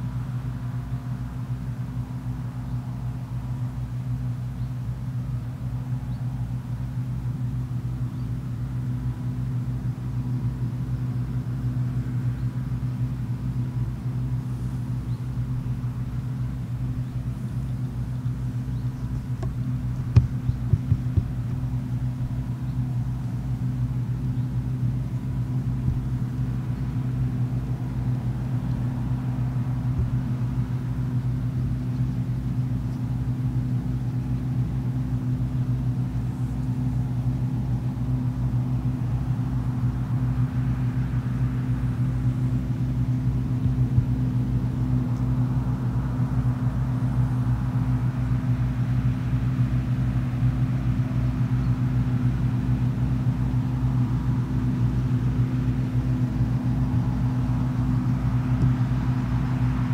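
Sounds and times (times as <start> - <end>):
combine harvester droning: 0.0 - 59.9
brief knocks: 19.4 - 21.3.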